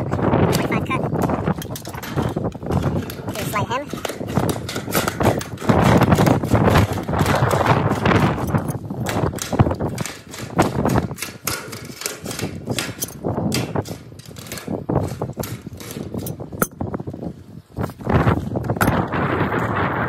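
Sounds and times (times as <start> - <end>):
metallic clicks and knocks: 0.5 - 16.8.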